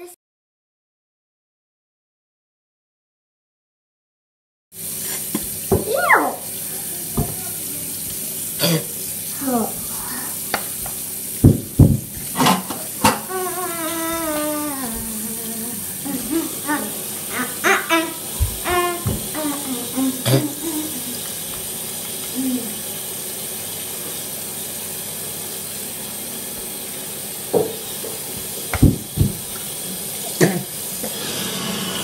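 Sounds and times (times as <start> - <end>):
tap running into sink: 5.3 - 6.1, 7.1 - 8.2, 10.4 - 15.2, 17.6 - 22.4, 27.5 - 31.3
children's voices: 13.3 - 21.2.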